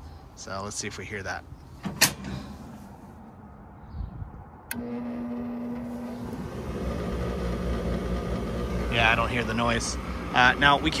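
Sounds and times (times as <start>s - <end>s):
motor humming: 4.7s - 11.0s.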